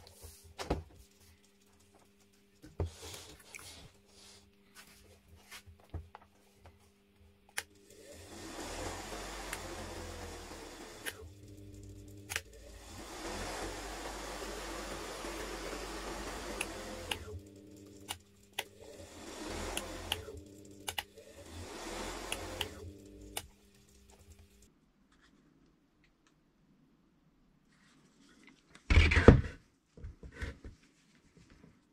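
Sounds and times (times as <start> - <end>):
washing machine motor humming: 7.5 - 24.7
sharp clicks: 19.8 - 21.1.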